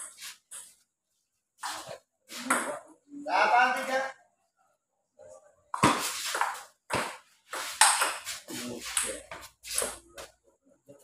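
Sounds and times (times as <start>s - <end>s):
ping pong ball hits: 5.7s - 8.3s.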